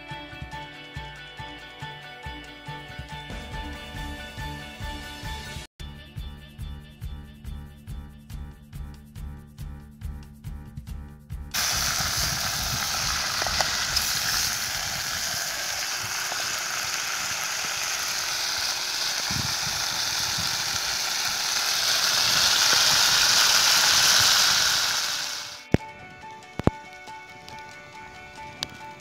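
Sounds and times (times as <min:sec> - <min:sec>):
meat sizzling in a pot: 0:11.6 - 0:25.7.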